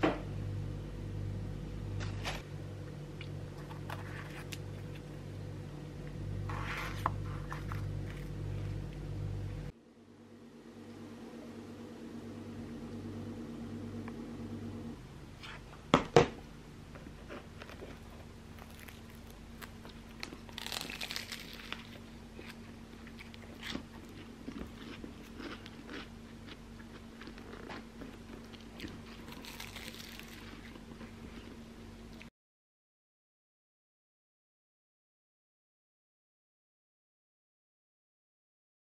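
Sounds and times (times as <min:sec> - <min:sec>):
low steady hum: 0:00.0 - 0:32.3
crunching pastry being chewed: 0:03.2 - 0:05.0, 0:17.2 - 0:32.3.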